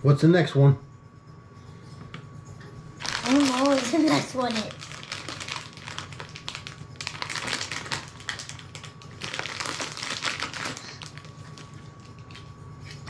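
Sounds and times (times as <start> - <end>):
plastic wrapper crackling: 3.0 - 12.5.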